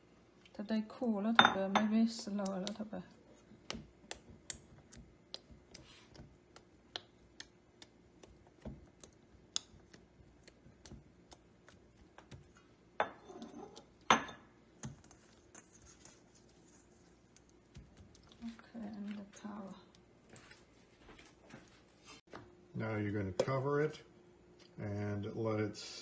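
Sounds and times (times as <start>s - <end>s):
fingertips poking soft dough: 3.6s - 12.7s.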